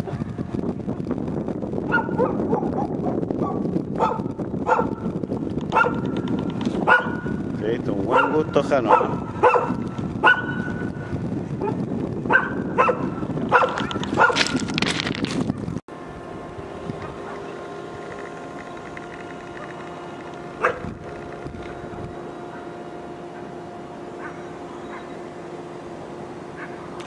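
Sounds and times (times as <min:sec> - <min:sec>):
dogs barking: 0:01.9 - 0:05.1, 0:05.7 - 0:07.4, 0:08.1 - 0:10.9, 0:11.6 - 0:14.6, 0:19.5 - 0:19.9, 0:20.6 - 0:20.9, 0:22.4 - 0:25.2, 0:26.5 - 0:26.9
train hum with held tones: 0:15.9 - 0:27.0.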